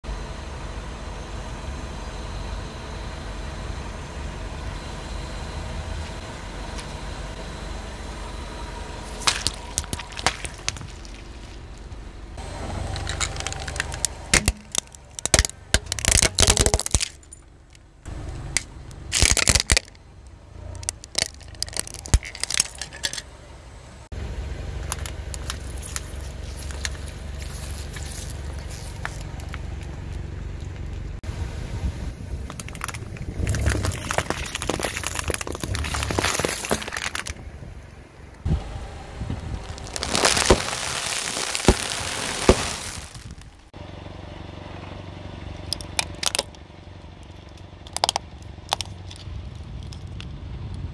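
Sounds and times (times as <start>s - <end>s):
car engine rumble: 0.0s - 50.9s
drink cans crunching flat: 9.1s - 11.7s, 12.9s - 17.4s, 19.1s - 20.0s, 20.8s - 23.2s, 24.8s - 29.6s, 32.5s - 37.4s, 39.6s - 43.4s
plastic cracking under car tyre: 9.1s - 11.9s, 12.9s - 17.8s, 18.6s - 20.0s, 20.8s - 23.2s, 24.8s - 31.1s, 32.4s - 37.4s, 39.6s - 43.6s, 45.7s - 46.6s, 47.8s - 50.3s.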